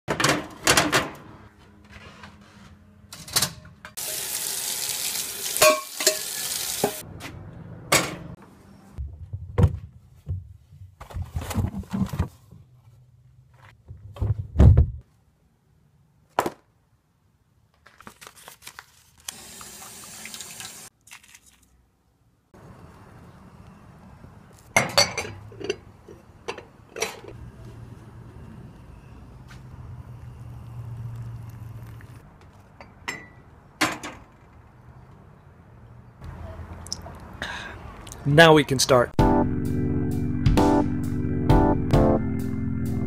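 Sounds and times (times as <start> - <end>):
kitchen knocks and thumps: 9.0 - 12.3.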